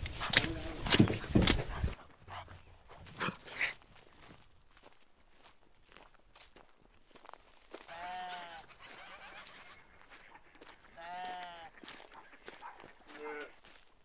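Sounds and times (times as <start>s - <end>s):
footsteps on concrete: 0.0s - 2.1s, 3.9s - 14.0s
goat bleating: 0.2s - 1.3s, 7.9s - 13.7s.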